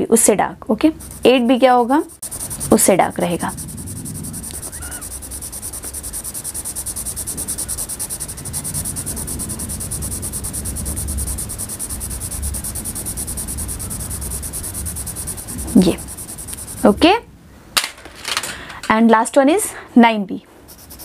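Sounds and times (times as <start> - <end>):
pencil scratching on paper: 0.8 - 17.0, 20.7 - 21.0.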